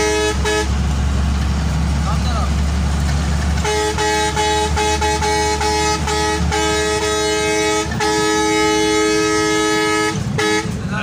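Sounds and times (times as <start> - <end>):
bus air horn blasts: 0.0 - 0.9, 3.6 - 11.0
engine low rumble: 0.0 - 11.0.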